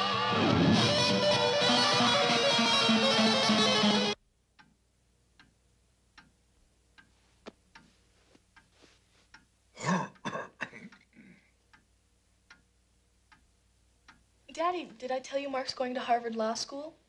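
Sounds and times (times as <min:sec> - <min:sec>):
throat-clearing cough: 0:09.8 - 0:11.5.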